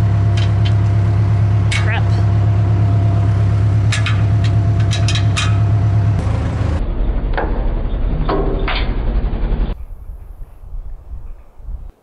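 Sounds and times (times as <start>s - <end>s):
diesel engine idling: 0.0s - 9.8s
metallic clanks: 1.6s - 2.4s, 3.6s - 6.2s.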